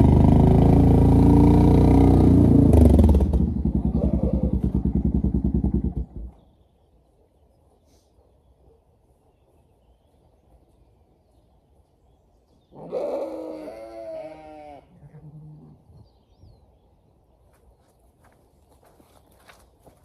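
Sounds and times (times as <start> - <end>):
sheep bleating: 12.8 - 15.2.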